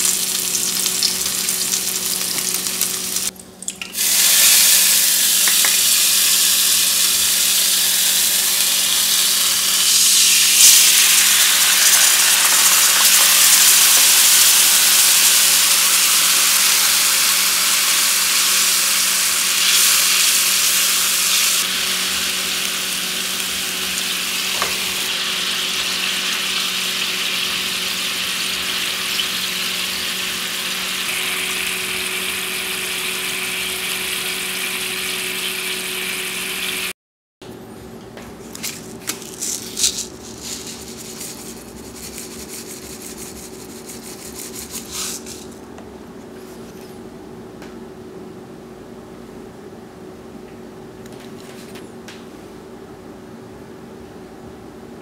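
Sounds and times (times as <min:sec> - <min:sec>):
sauce sizzling in a frying pan: 0:00.0 - 0:03.3, 0:04.0 - 0:36.9
rubbing sounds: 0:38.7 - 0:45.5.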